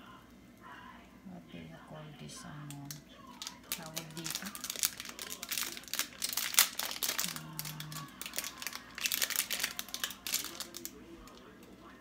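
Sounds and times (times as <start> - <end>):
plastic packet crinkling: 2.7 - 11.7.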